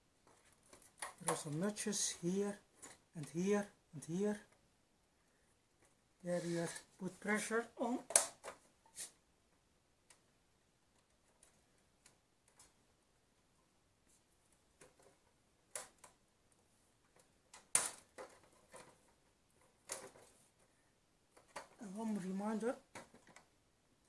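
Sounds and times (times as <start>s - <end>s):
plastic clips clicking and snapping: 8.0s - 8.6s, 17.1s - 19.0s.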